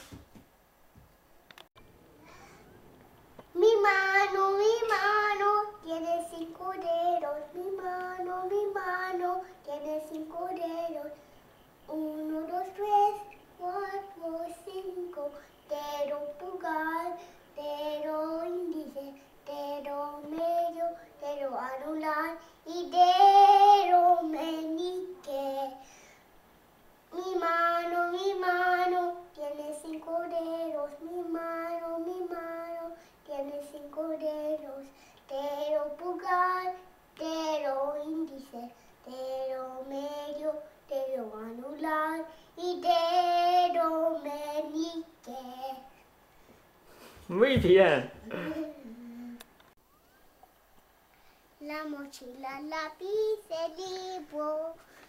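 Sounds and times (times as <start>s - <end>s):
boy singing unaccompanied: 3.4s - 11.2s, 11.8s - 25.8s, 27.1s - 45.9s, 51.6s - 55.0s.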